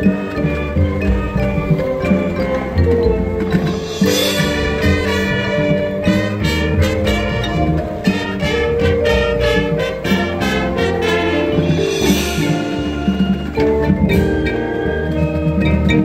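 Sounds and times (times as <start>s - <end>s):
brass chords: 0.0s - 15.1s
marching band percussion: 0.0s - 16.0s.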